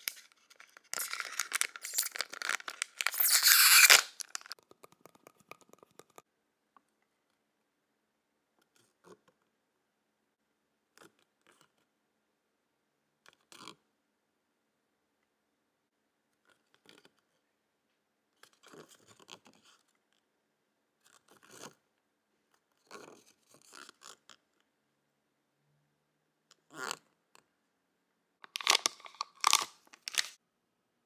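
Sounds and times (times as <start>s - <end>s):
paper crinkling and rustling: 0.0s - 4.6s, 28.5s - 30.4s.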